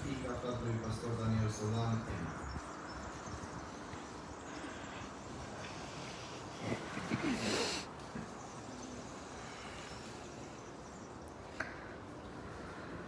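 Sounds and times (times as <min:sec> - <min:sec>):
crowd standing quietly: 0:00.0 - 0:13.0.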